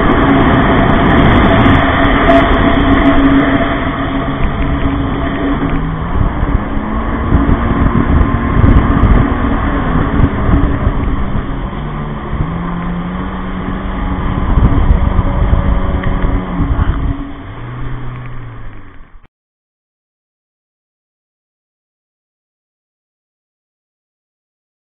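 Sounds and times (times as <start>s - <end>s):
jet ski engine running: 0.0s - 19.3s
rushing water: 0.0s - 19.3s.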